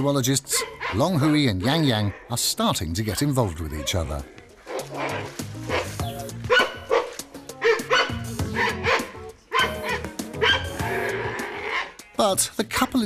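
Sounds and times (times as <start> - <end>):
background music with low notes: 2.7 - 13.0
pandas calling: 3.6 - 12.2.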